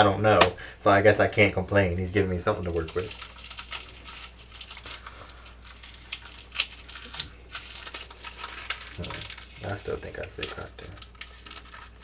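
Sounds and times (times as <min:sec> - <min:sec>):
crinkling rustle: 0:02.7 - 0:12.0.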